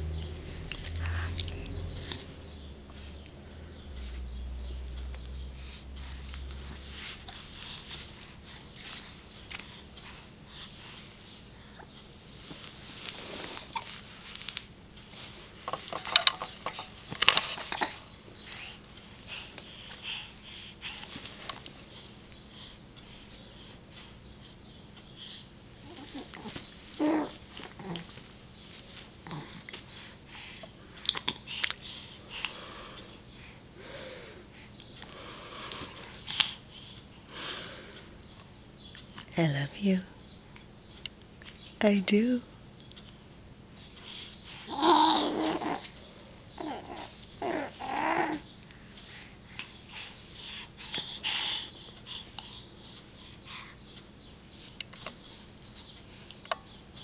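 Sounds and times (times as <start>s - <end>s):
baby breathing and huffing: 16.7s - 21.3s, 44.1s - 45.8s, 49.0s - 53.9s
baby soft vocal sound: 25.8s - 28.1s, 44.6s - 46.0s, 46.6s - 48.5s.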